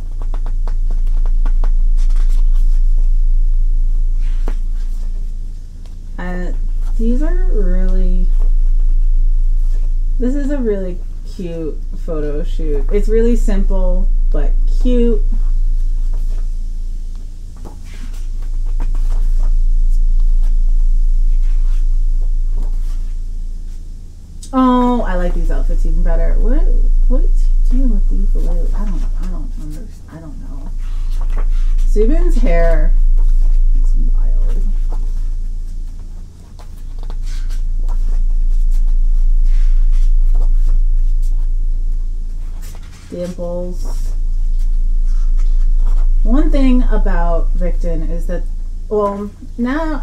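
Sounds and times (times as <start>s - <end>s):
steady low hum: 0.0s - 50.0s
pages being turned: 17.6s - 19.5s.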